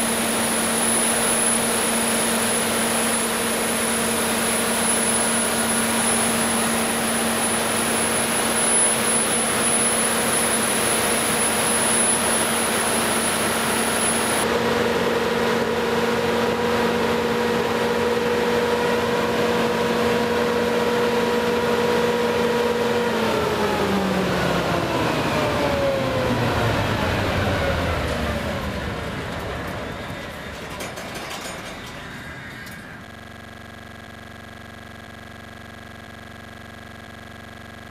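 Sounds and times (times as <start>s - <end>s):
diesel generator running: 0.0s - 37.9s
high whine: 0.0s - 37.9s.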